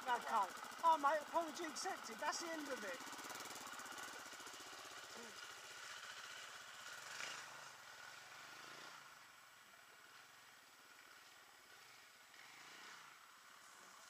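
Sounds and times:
dirt bike engine pulsing: 0:00.0 - 0:09.0
dirt bike pulling away: 0:00.0 - 0:14.0.

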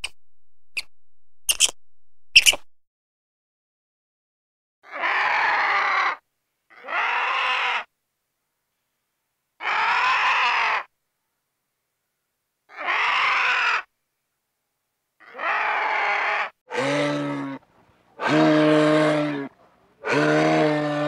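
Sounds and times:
animal calling harshly: 0:04.8 - 0:07.9, 0:09.6 - 0:10.9, 0:12.7 - 0:13.9, 0:15.2 - 0:17.6, 0:18.2 - 0:21.0.

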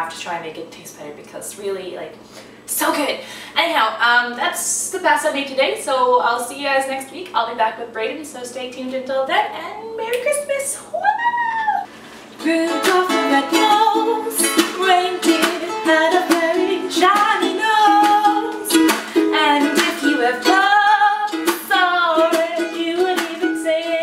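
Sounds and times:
woman singing: 0:09.6 - 0:24.0
ukulele strumming: 0:12.4 - 0:24.0.

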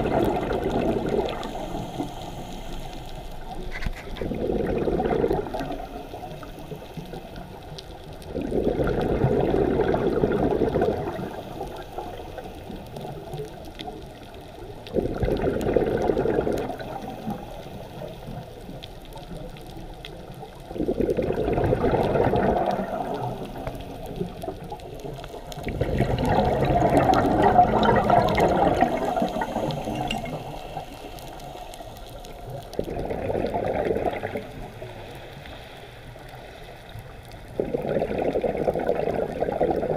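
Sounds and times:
diver's breath bubbling underwater: 0:00.0 - 0:02.6, 0:03.6 - 0:06.5, 0:08.3 - 0:12.1, 0:14.9 - 0:17.4, 0:20.7 - 0:24.2, 0:25.6 - 0:31.4, 0:32.7 - 0:35.0, 0:37.5 - 0:39.9.

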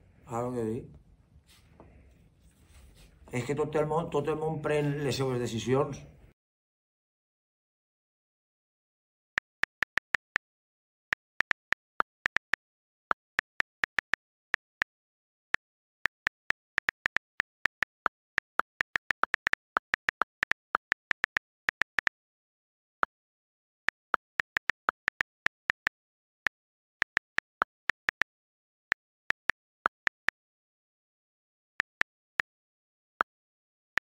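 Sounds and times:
phone keyboard clicks: 0:09.4 - 0:10.4, 0:11.2 - 0:12.6, 0:13.2 - 0:14.9, 0:15.7 - 0:22.1, 0:23.9 - 0:30.4.

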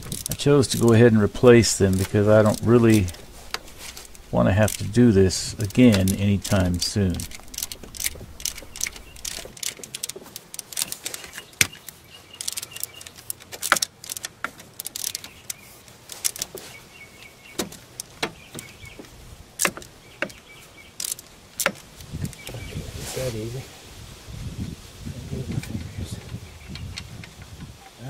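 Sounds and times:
metal tools clinking: 0:00.0 - 0:16.6
ratchet clicking: 0:00.0 - 0:16.6, 0:21.0 - 0:22.4.

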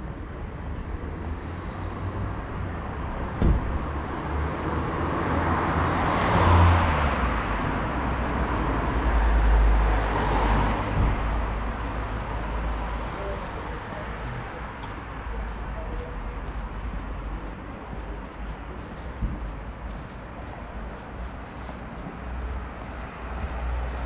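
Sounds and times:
vehicles passing: 0:00.0 - 0:24.0
thump: 0:03.3 - 0:03.9, 0:10.9 - 0:11.3.

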